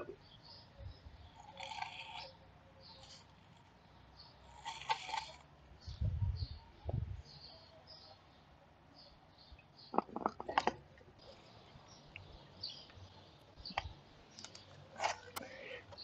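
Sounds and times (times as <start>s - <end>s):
faint bird chirps: 0.0s - 10.3s.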